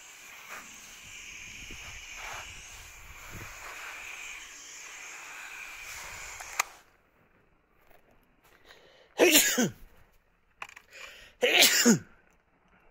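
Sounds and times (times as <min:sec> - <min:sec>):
hose spray nozzle hissing: 0:00.0 - 0:07.0.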